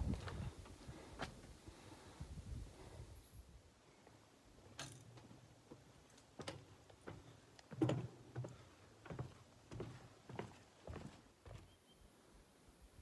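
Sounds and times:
footsteps on wooden boardwalk: 0.0 - 1.5, 4.6 - 11.8.

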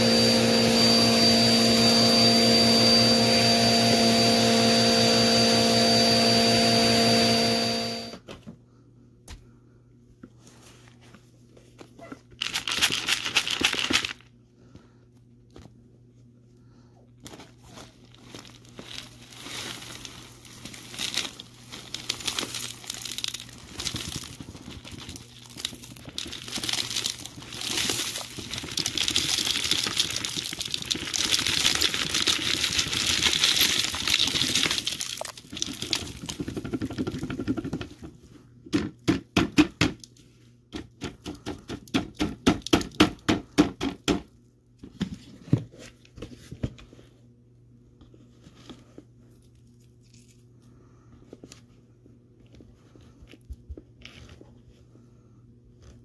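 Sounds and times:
dirt and debris crunching: 17.3 - 36.6.

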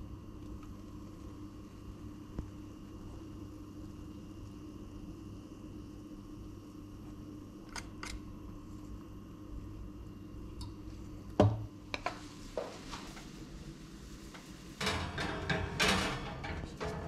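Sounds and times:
metal pan rattling on oven rack: 14.8 - 17.0.

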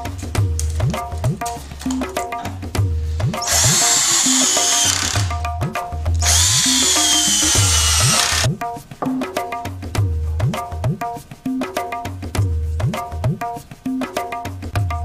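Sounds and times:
rhythmic music with tabla drumming: 0.0 - 15.0
cordless drill driving screws: 3.4 - 5.4, 6.2 - 8.5.

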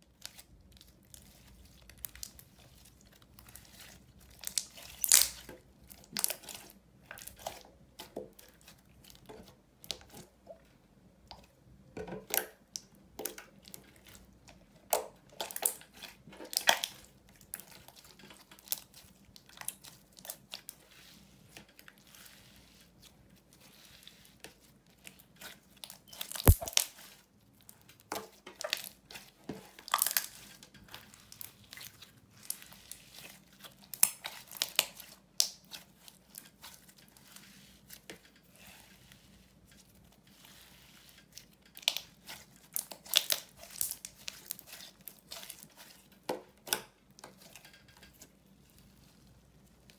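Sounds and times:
slime crackling and squishing: 0.1 - 10.4, 12.2 - 49.9
slime popping: 26.3 - 26.8.

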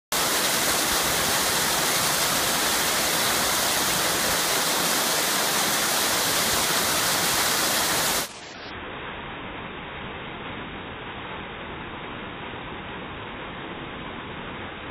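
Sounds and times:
waterfall rushing into pool: 0.1 - 8.6.

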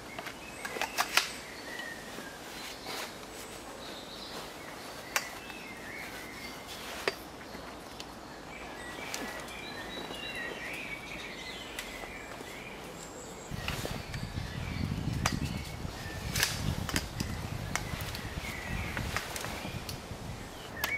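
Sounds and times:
small birds chirping faintly: 0.0 - 20.9
steady outdoor hiss: 0.0 - 20.9
metal frame clicks: 0.1 - 1.4.

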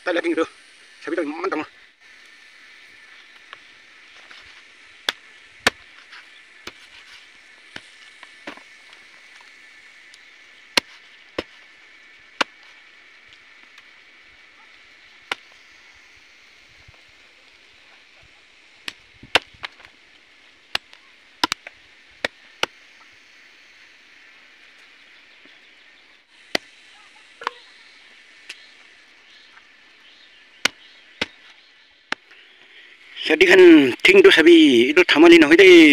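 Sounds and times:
steady high hum: 0.0 - 34.9
machete chopping chicken on wood: 20.8 - 22.8, 30.6 - 31.4.

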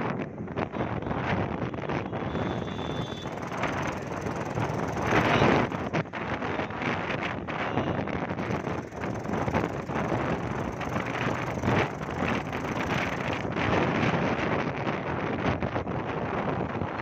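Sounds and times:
wind buffeting microphone: 0.0 - 17.0
vehicle road noise: 1.5 - 7.5, 8.4 - 14.1.

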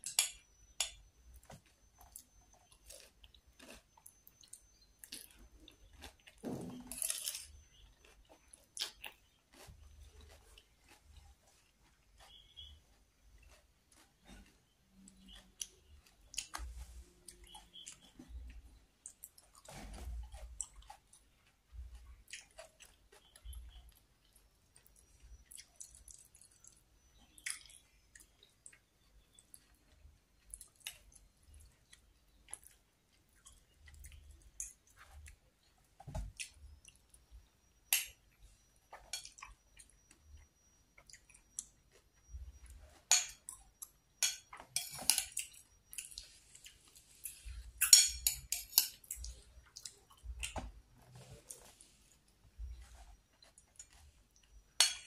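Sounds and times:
person chewing: 0.0 - 55.0.

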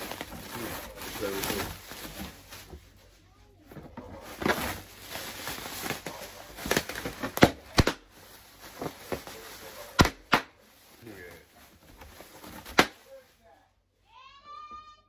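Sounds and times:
bubble wrap popping: 0.0 - 2.8, 4.2 - 13.3
bubble wrap crinkling: 0.0 - 13.6.

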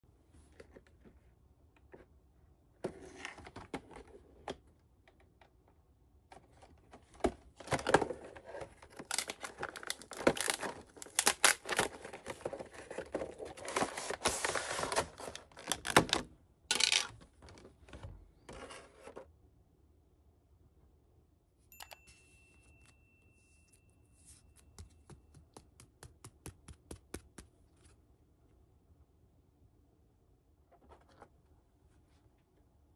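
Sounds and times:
plastic wrap tearing and crinkling: 9.0 - 11.9.

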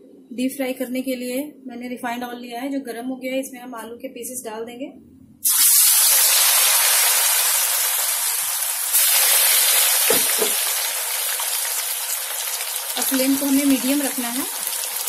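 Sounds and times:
potatoes sizzling in hot oil: 5.4 - 15.0.

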